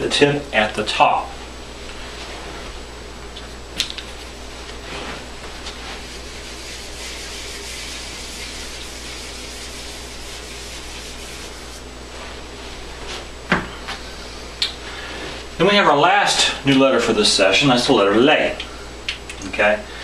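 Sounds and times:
eraser rubbing on whiteboard: 5.7s - 11.8s.

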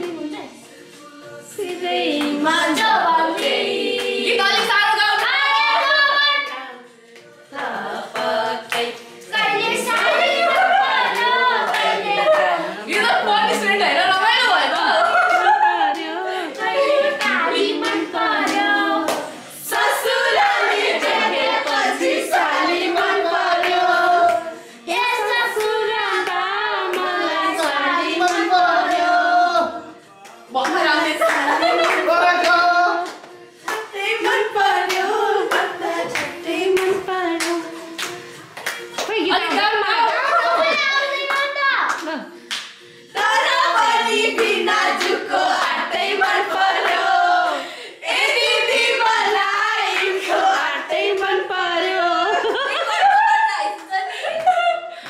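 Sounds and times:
people singing and shouting: 0.0s - 55.0s
hands clapping: 8.2s - 12.6s, 14.8s - 21.9s, 25.6s - 29.1s, 30.2s - 47.1s, 53.8s - 54.7s.

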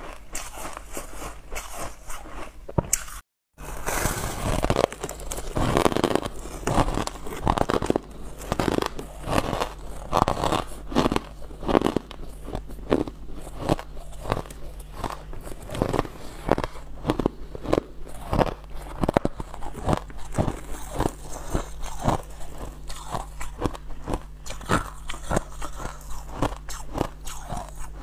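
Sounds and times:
person crunching ice: 0.0s - 27.9s.

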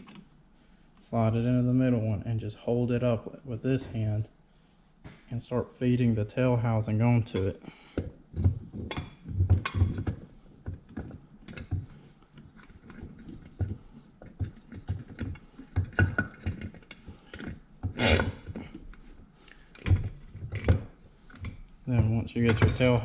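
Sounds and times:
metal clinking and knocking: 7.2s - 19.0s.

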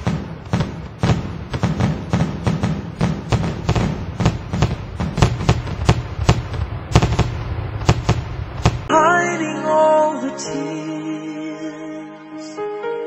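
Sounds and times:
fireworks bangs and booms: 0.0s - 8.9s.

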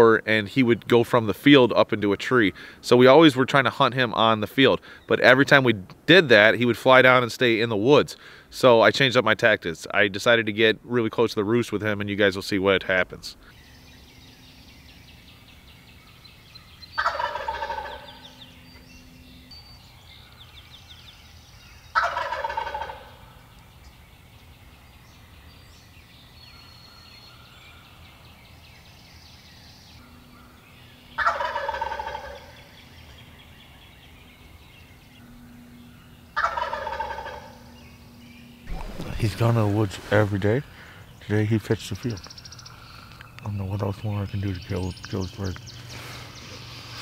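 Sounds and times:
faint songbird chirping: 0.0s - 6.8s, 7.4s - 47.0s
turkey gobbling: 17.0s - 18.4s, 21.9s - 23.4s, 31.2s - 32.8s, 36.4s - 37.8s, 38.7s - 40.9s.

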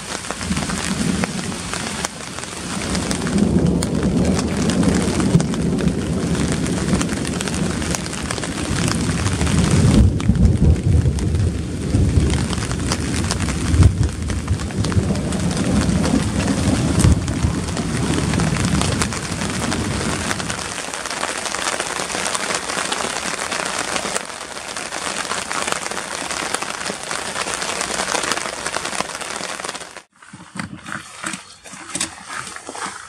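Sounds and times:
steady rain pouring: 0.0s - 30.1s
low rumble of thunder: 0.4s - 20.8s.

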